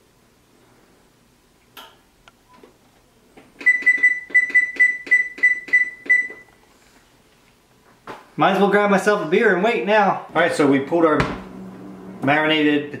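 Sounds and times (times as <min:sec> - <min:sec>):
oven panel short high beeps: 0:03.6 - 0:06.5.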